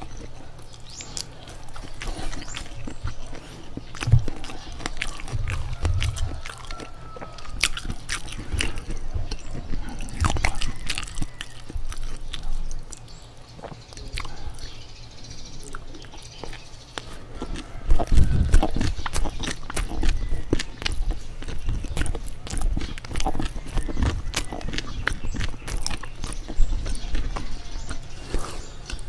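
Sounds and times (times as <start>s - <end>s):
person chewing: 0.0s - 14.9s, 15.6s - 29.0s
wet mouth clicks and smacks: 15.7s - 29.0s.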